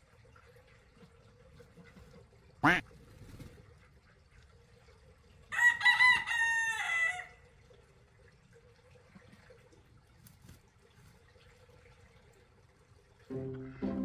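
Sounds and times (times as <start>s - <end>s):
rooster crowing: 5.5s - 7.4s.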